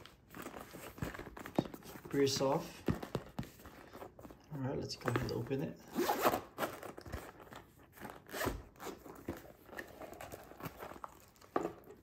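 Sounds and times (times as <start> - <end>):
case clicks and rustles: 0.0 - 12.0
zipper rasping open: 5.8 - 6.9, 8.0 - 9.3.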